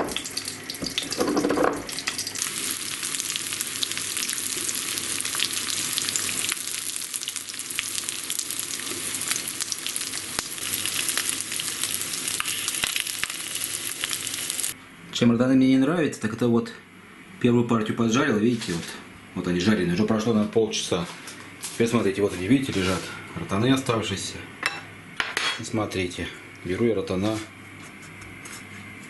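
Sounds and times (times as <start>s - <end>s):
fish sizzling in oil: 1.9s - 14.8s.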